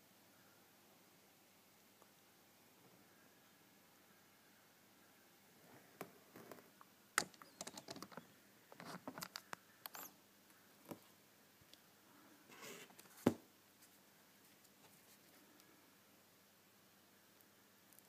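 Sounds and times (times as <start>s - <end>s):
sharp clicks: 7.2s - 8.2s.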